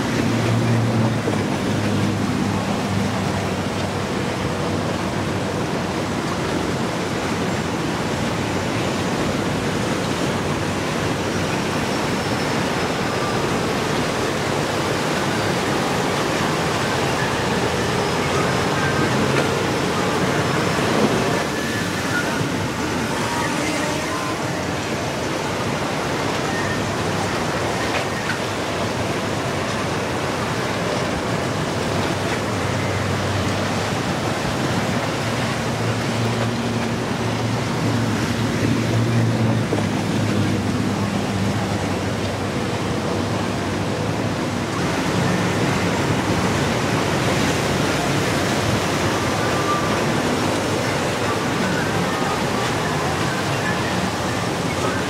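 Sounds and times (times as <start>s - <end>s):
motor yacht engines droning: 0.0s - 55.0s
surf: 0.0s - 55.0s
wind: 0.0s - 55.0s.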